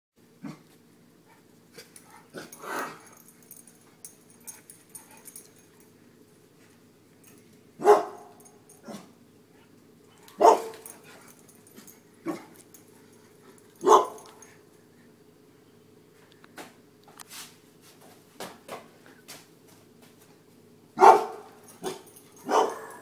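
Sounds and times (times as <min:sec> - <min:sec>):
dogs barking: 0:07.8 - 0:09.1, 0:10.2 - 0:11.1, 0:13.8 - 0:14.5, 0:21.0 - 0:23.0.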